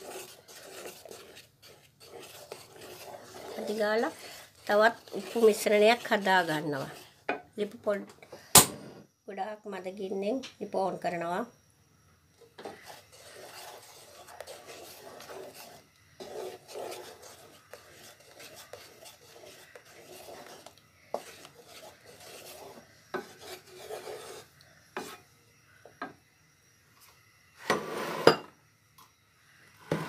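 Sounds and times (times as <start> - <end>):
wooden spoon scraping pan: 0.0 - 7.3, 12.5 - 25.2, 27.6 - 28.4.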